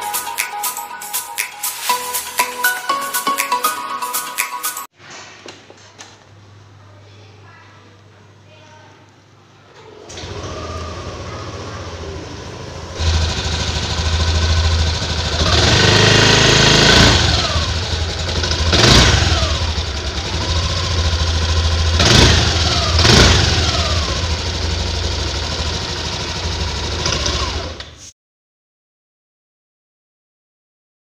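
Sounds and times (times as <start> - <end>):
scooter engine idling and revving: 10.1 - 28.1.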